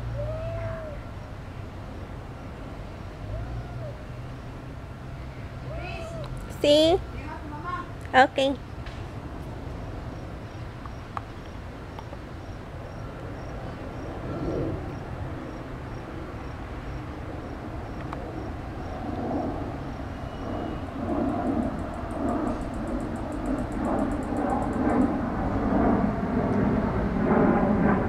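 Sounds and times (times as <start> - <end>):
low outdoor rumble: 0.0 - 28.0
faint high chirp: 20.1 - 20.9.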